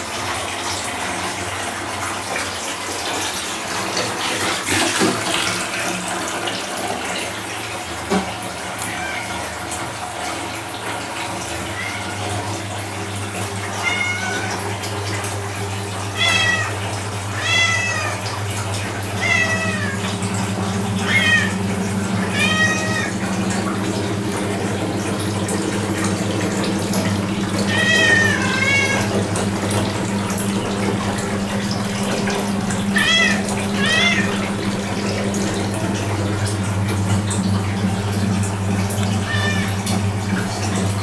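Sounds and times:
water running from bath tap: 0.0s - 41.0s
cat meowing: 13.8s - 14.6s, 16.1s - 16.8s, 17.4s - 18.3s, 19.2s - 20.1s, 21.0s - 21.6s, 22.2s - 23.2s, 27.6s - 29.1s, 33.0s - 34.4s, 39.2s - 39.8s.

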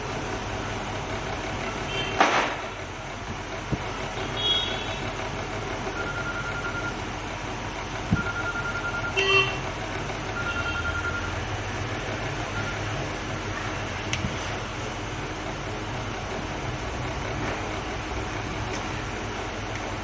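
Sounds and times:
steady background noise: 0.0s - 20.0s
pulsing beep: 5.9s - 7.0s, 8.1s - 9.2s, 10.4s - 11.4s, 12.5s - 13.0s.

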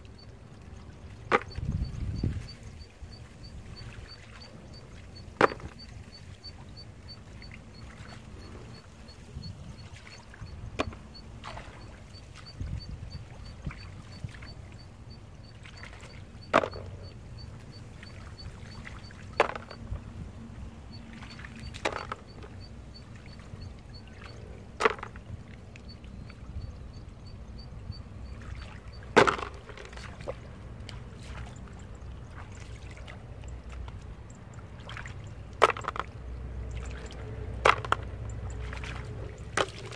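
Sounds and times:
low steady rumble: 0.0s - 39.9s
clams clacking into plastic basin: 29.2s - 30.0s, 35.6s - 36.2s, 37.4s - 38.2s.

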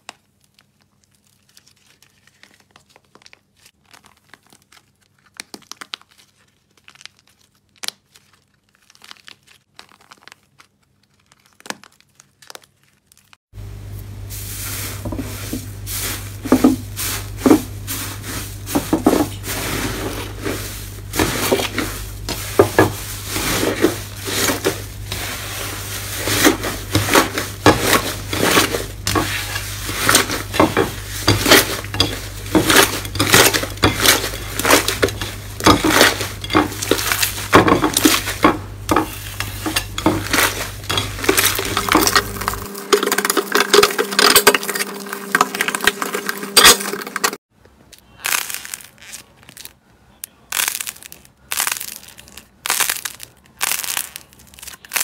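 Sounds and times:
slime crackling and popping: 0.0s - 13.4s, 47.9s - 55.0s.

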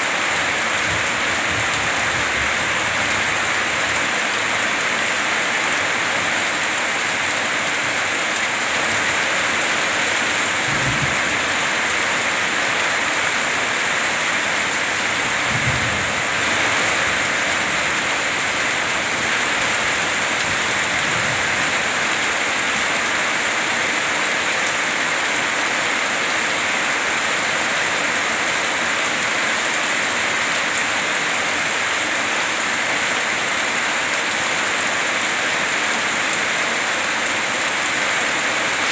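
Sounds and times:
heavy rain pouring: 0.0s - 38.9s
low thunder rumbles: 10.6s - 11.6s.

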